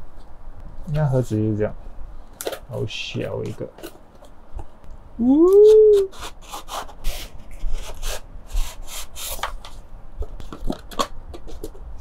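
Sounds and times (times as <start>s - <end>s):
cardboard rubbing on cardboard: 6.0s - 9.6s.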